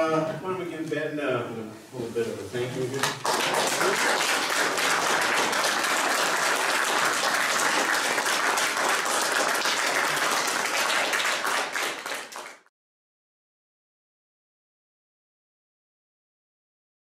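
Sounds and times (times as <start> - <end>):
audience applauding: 2.9 - 12.7.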